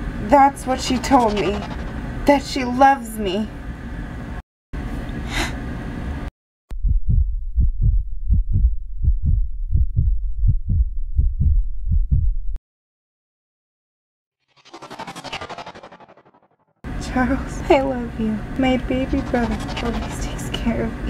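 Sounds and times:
steady noise: 0:00.8 - 0:02.4, 0:18.4 - 0:21.0
heartbeat thumps: 0:06.7 - 0:12.6.

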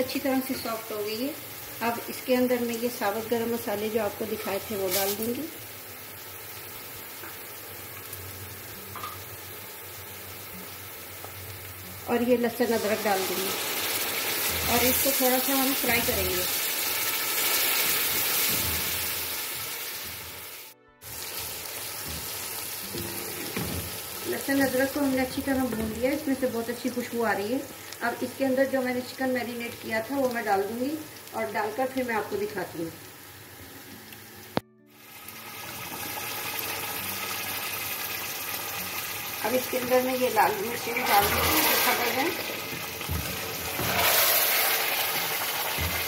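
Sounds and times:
food sizzling in hot oil: 0:00.0 - 0:46.0.

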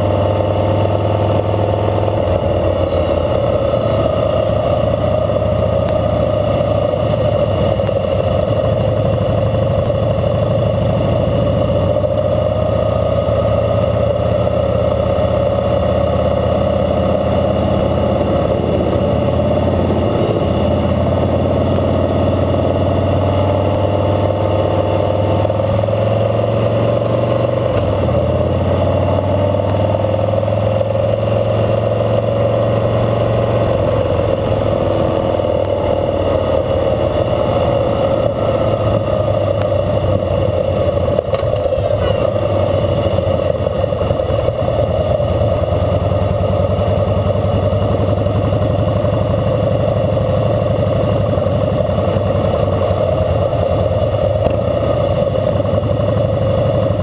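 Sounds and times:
motorcycle engine running: 0:00.0 - 0:57.0
road and wind noise: 0:00.0 - 0:57.0.

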